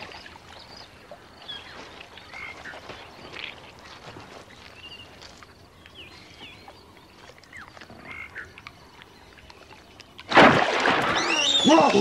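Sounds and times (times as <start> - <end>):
croaking and chirping calls: 6.0 - 9.4
loud water splash: 10.3 - 12.0.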